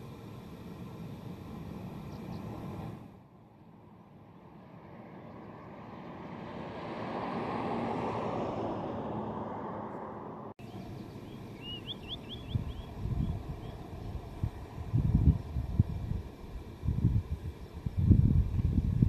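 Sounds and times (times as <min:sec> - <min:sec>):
vehicle passing: 0:04.5 - 0:15.7
bird chirping: 0:10.6 - 0:14.7.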